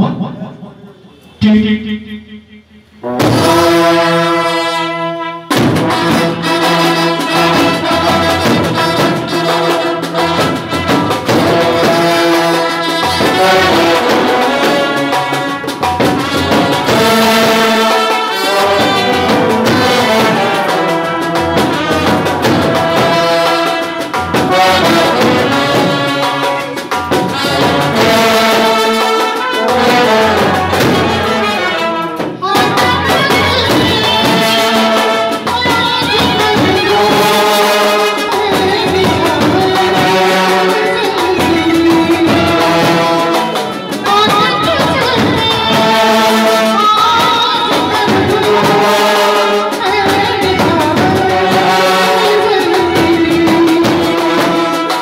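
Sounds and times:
trumpets and euphoniums melody: 0:01.0 - 0:55.0
snare drum beat: 0:05.5 - 0:55.0.

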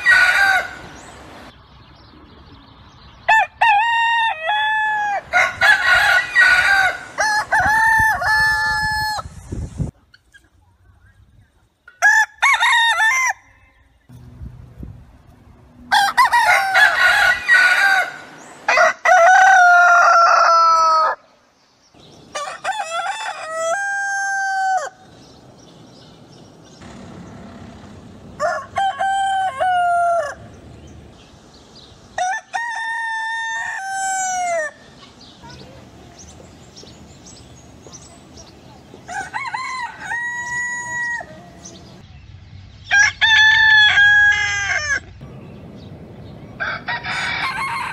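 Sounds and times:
roosters crowing: 0:00.0 - 0:01.1, 0:03.3 - 0:09.4, 0:11.9 - 0:14.1, 0:15.8 - 0:21.4, 0:22.0 - 0:25.2, 0:26.8 - 0:31.2, 0:32.0 - 0:35.0, 0:38.9 - 0:42.0, 0:42.8 - 0:45.3, 0:46.5 - 0:47.9.

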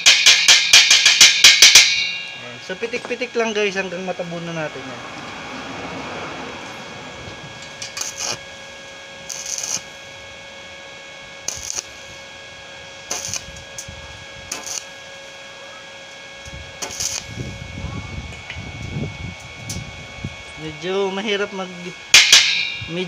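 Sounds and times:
welding arc crackling: 0:00.0 - 0:04.8, 0:06.6 - 0:19.9, 0:20.6 - 0:23.0.

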